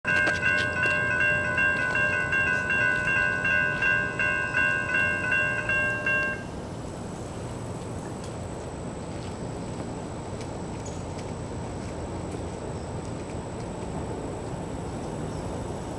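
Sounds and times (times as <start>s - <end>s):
railroad crossing bells ringing: 0.0s - 8.0s.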